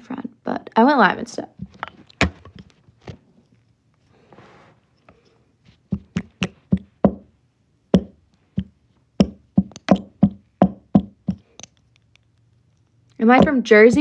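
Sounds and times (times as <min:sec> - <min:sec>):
sharp taps or knocks: 0:05.9 - 0:07.3, 0:07.9 - 0:11.8, 0:13.3 - 0:14.0.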